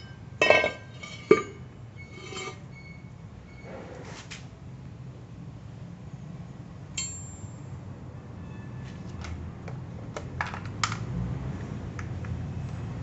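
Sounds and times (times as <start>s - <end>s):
metallic ping: 7.0s - 7.7s.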